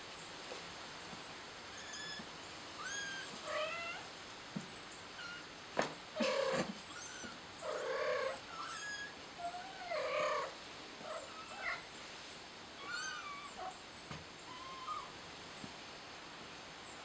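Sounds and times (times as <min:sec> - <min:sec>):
kitten meowing: 0:02.8 - 0:04.0.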